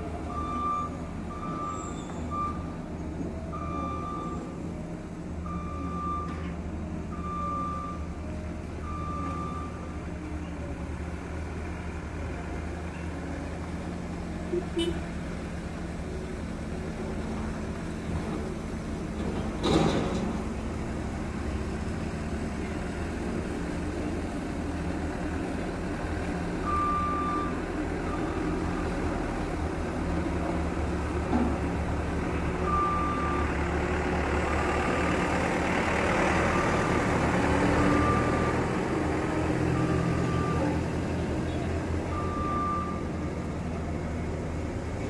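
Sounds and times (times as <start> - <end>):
reversing alarm beeps: 0.3 - 2.7, 3.5 - 4.6, 5.4 - 6.4, 7.1 - 8.1, 26.6 - 28.6, 32.6 - 33.6, 42.0 - 43.2.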